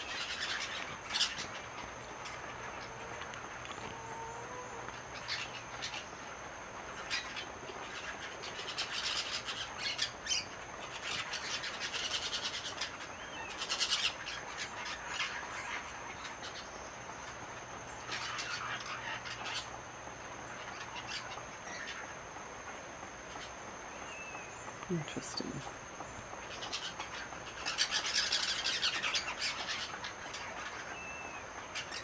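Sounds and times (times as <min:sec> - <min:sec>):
parakeets squawking: 0:18.1 - 0:19.6, 0:26.5 - 0:30.9.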